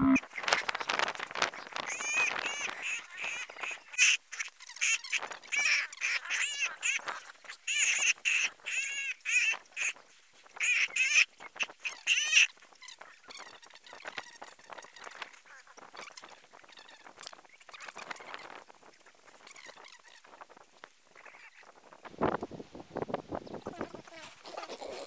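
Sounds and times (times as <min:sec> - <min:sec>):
high-pitched animal cries: 0:00.0 - 0:00.2.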